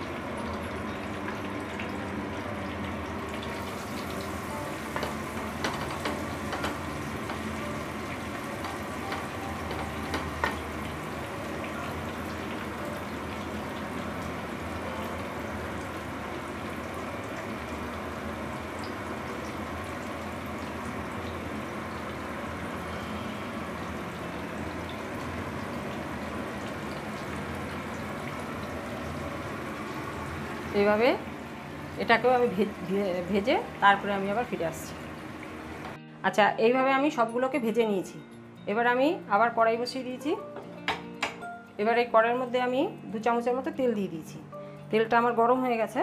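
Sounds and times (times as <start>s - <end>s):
chicken sizzling in hot oil: 0.0s - 36.0s.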